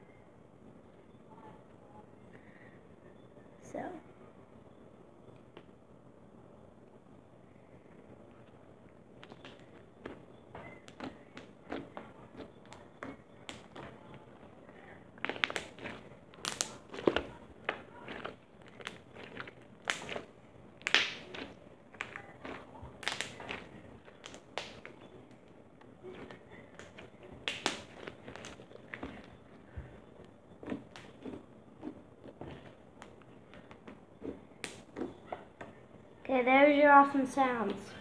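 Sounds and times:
slime squeezed by hand popping: 26.2 - 29.3.

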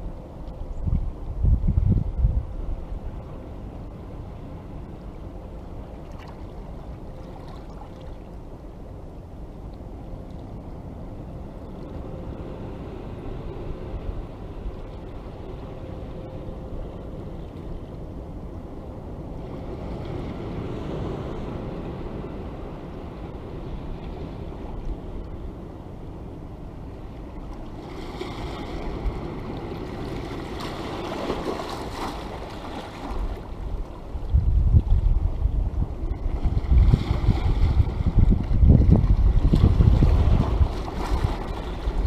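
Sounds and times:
wind rumble on microphone: 0.0 - 42.0
waves washing over rocks: 27.6 - 33.8, 35.8 - 42.0.

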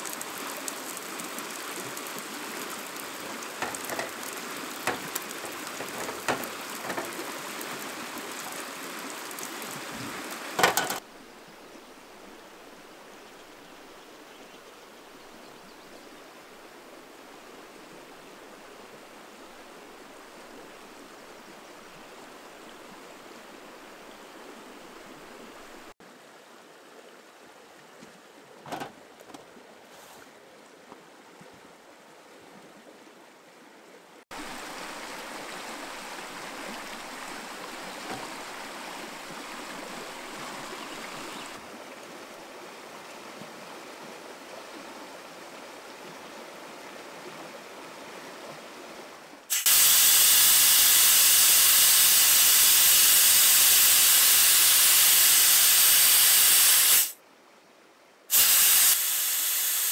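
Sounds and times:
rain falling: 0.0 - 14.4, 34.3 - 41.6
flowing water rushing: 0.0 - 57.2.

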